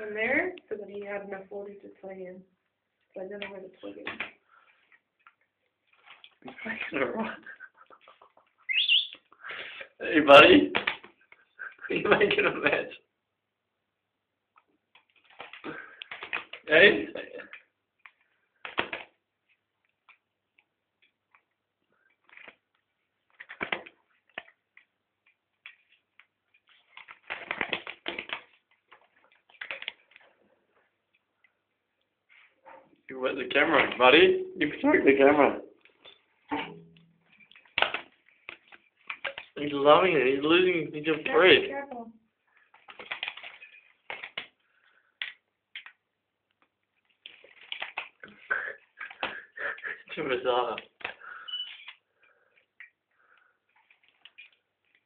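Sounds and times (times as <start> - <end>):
squeaky bird chirps: 8.6 - 9.3, 51.4 - 51.9.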